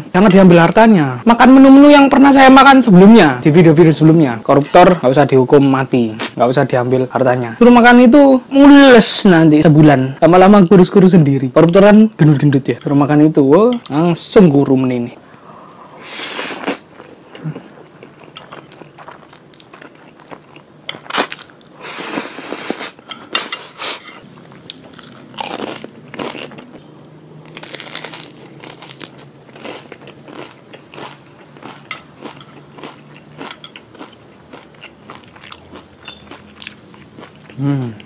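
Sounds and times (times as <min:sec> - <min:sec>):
chewing: 0:27.6 - 0:38.0.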